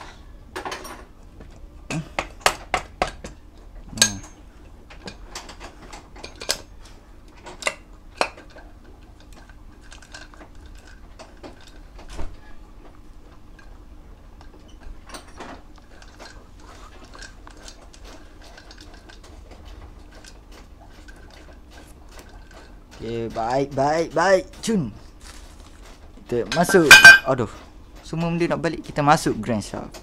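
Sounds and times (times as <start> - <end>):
metal gears clinking and knocking: 17.1 - 28.2.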